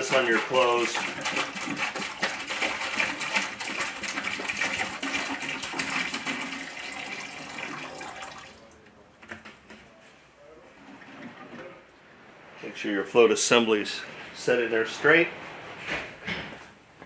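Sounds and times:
liquid glugging and splashing: 0.0s - 8.7s.

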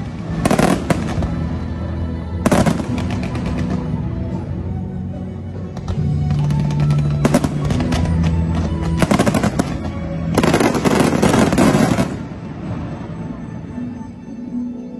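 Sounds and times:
fireworks bangs and crackling: 0.0s - 4.4s, 5.7s - 13.0s
music: 0.0s - 14.9s.

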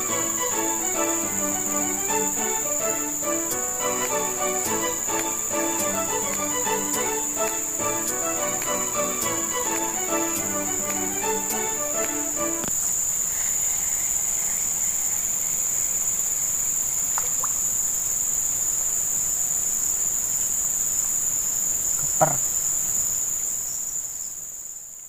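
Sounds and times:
insects buzzing: 0.0s - 25.0s.

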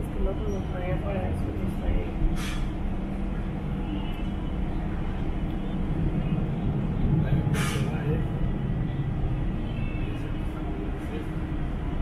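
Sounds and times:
low engine rumble: 0.0s - 12.0s
brief hissing: 2.4s - 2.8s, 7.5s - 8.0s.

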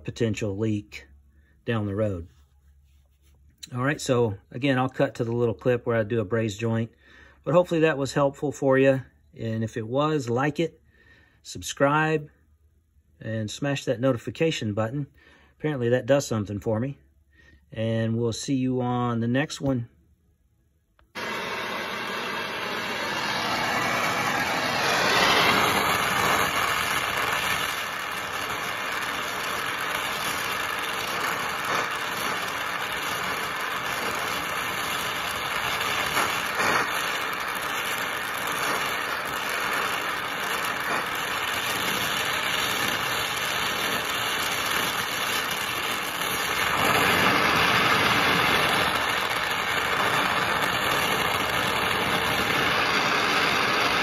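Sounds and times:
torch flame hissing: 21.1s - 54.0s.

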